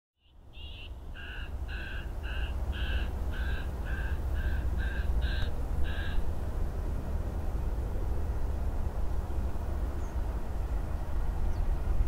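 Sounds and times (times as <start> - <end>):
bird harsh calls: 0.2 - 6.3.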